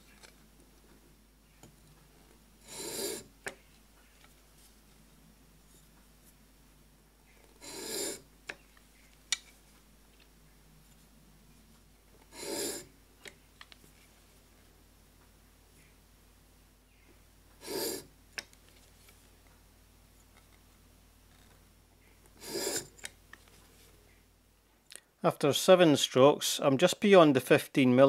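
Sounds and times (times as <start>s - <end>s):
blade scraping on waterstone: 2.7s - 3.2s, 7.6s - 8.2s, 12.3s - 12.9s, 17.6s - 18.0s, 22.4s - 23.0s.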